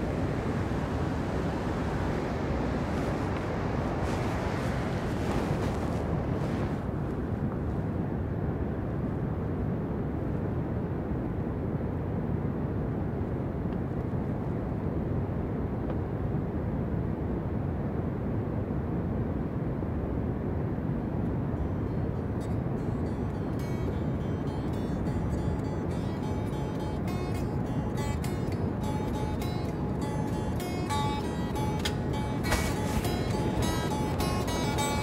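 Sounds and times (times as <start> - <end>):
water roaring from dam outlet: 0.0 - 6.9.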